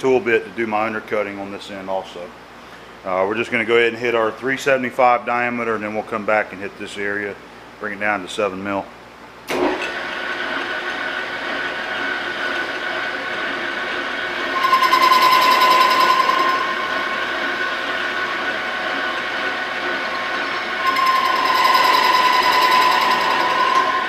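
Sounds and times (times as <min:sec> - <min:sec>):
lathe running: 0:09.8 - 0:24.0
ringing tone of tool cutting steel: 0:14.6 - 0:17.3, 0:20.8 - 0:24.0.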